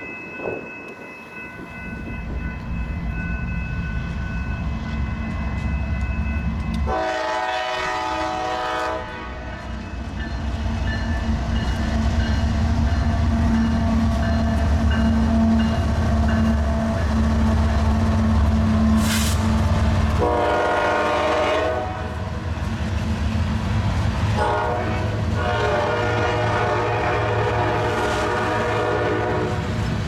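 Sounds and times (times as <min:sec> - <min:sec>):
diesel locomotive engine rumble: 0:00.0 - 0:30.0
locomotive horn: 0:06.8 - 0:09.7, 0:20.0 - 0:22.2, 0:24.3 - 0:29.7.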